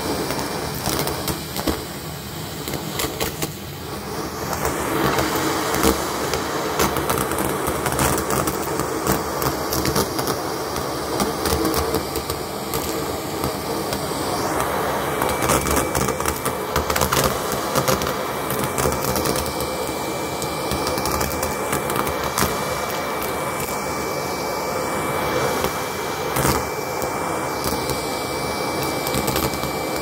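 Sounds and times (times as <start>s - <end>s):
vacuum cleaner running: 0.0s - 30.0s
debris clicking and rattling in vacuum: 0.3s - 1.9s, 15.2s - 19.8s, 28.7s - 30.0s.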